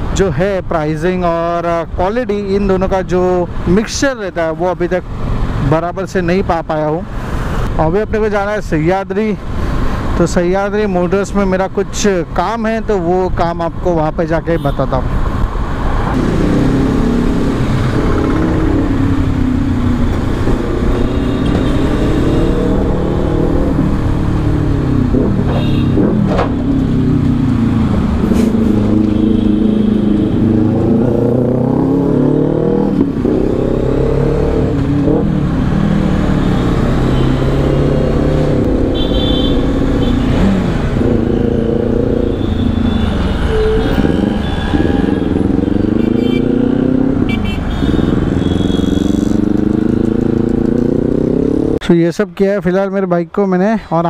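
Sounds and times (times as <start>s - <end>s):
motorcycle engine revving: 16.1s - 51.8s.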